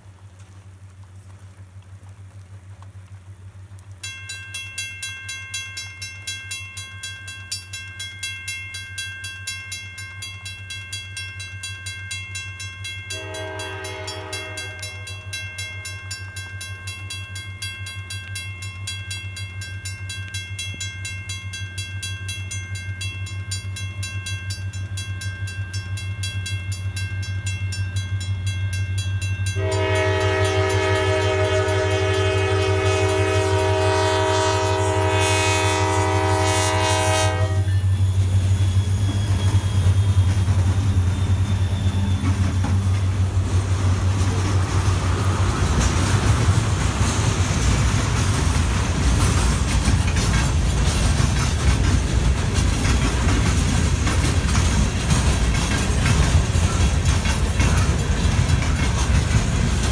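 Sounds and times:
train rumble: 0:00.0 - 0:59.9
level crossing warning bell: 0:04.0 - 0:38.0, 0:48.6 - 0:59.9
train air horn blast: 0:13.1 - 0:15.3, 0:29.6 - 0:38.6.

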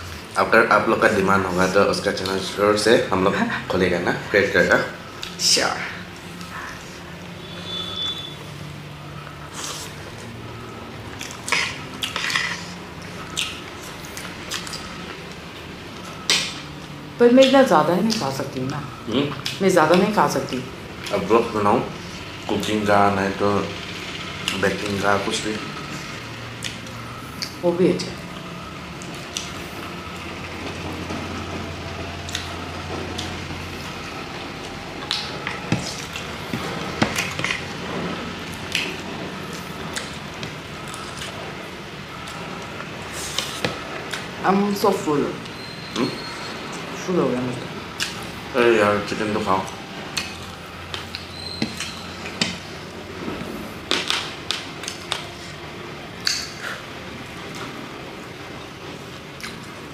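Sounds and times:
chewing with clicks and smacks: 0:11.1 - 0:15.4, 0:18.1 - 0:19.6, 0:26.6 - 0:27.6, 0:32.2 - 0:33.4, 0:34.6 - 0:37.6, 0:38.6 - 0:41.4, 0:48.0 - 0:48.2, 0:49.6 - 0:52.6, 0:53.9 - 0:55.6, 0:56.2 - 0:56.9, 0:59.4 - 0:59.8
wet chewing and eating: 0:11.1 - 0:15.4.

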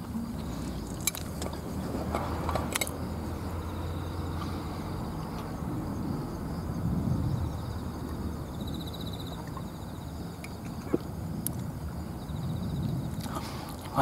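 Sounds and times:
insects chirring: 0:00.0 - 0:14.0
low outdoor rumble: 0:00.0 - 0:14.0
man gulping a drink: 0:10.5 - 0:11.1.

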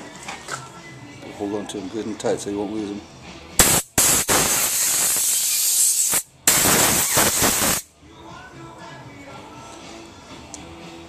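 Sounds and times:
compressed air blow gun hissing: 0:03.6 - 0:07.8.

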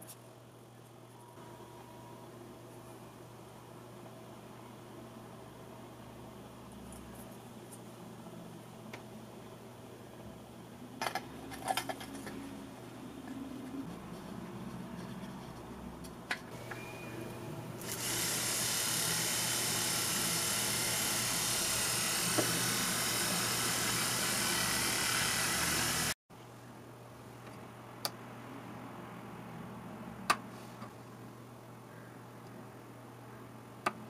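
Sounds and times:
small motor whirring: 0:17.8 - 0:26.2.

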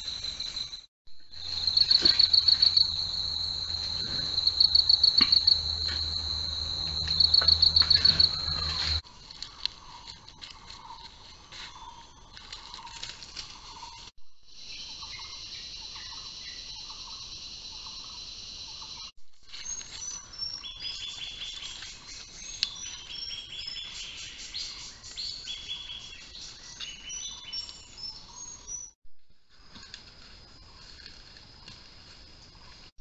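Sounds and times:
high insect drone: 0:00.0 - 0:09.0, 0:14.5 - 0:19.1
short high bird and insect calls: 0:00.0 - 0:10.1, 0:10.8 - 0:29.0.

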